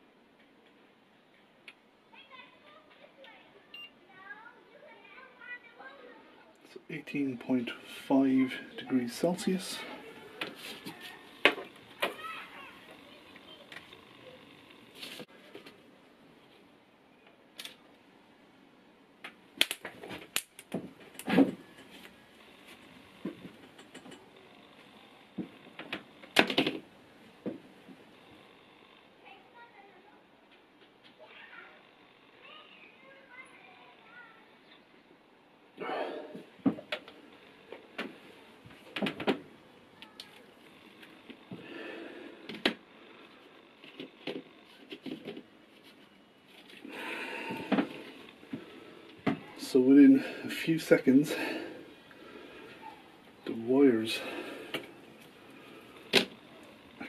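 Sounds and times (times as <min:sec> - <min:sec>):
clothing rustling against camera: 0:09.7 - 0:12.0, 0:14.9 - 0:15.8.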